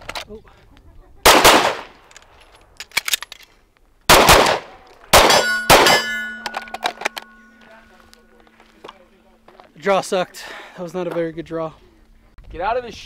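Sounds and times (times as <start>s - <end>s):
pistol shots: 1.2s - 2.0s, 4.1s - 7.4s
steel target ringing: 5.2s - 8.4s.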